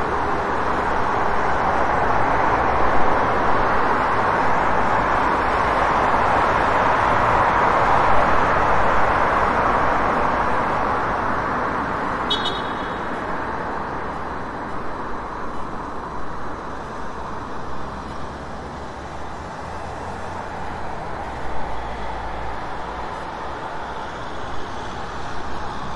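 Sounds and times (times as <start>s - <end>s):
passing cars: 0.0s - 25.9s
brief high tone: 12.3s - 13.1s.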